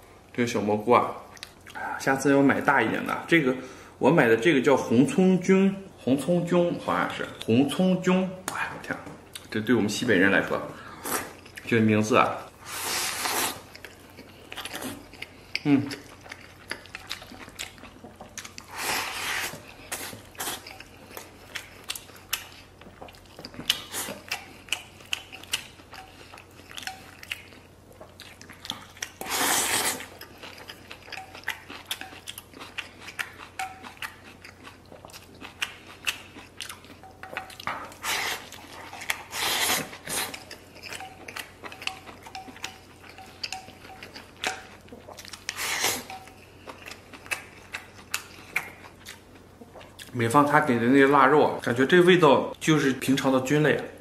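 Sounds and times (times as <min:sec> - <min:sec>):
person chewing: 0:01.2 - 0:02.2, 0:10.8 - 0:11.8, 0:12.4 - 0:50.2.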